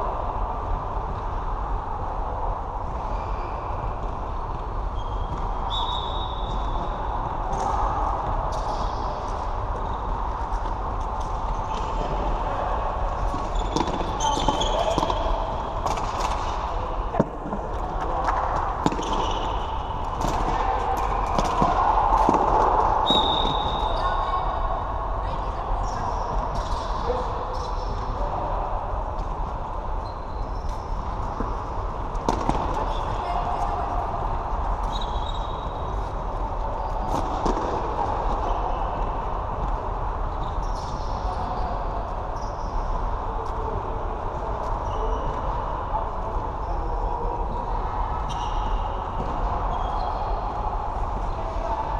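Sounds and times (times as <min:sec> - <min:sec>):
sports hall din: 0:00.0 - 0:51.9
high squeal: 0:05.0 - 0:07.1, 0:13.5 - 0:15.4, 0:23.0 - 0:24.6, 0:34.8 - 0:35.9
shoes squeaking on court floor: 0:13.2 - 0:22.4, 0:34.8 - 0:36.1, 0:44.6 - 0:45.6, 0:47.5 - 0:50.4.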